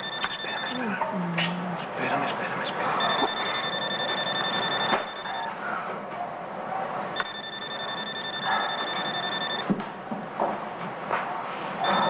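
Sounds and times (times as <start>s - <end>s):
telephone ringing: 0.0s - 1.0s, 3.0s - 5.6s, 7.2s - 9.7s, 11.8s - 12.0s.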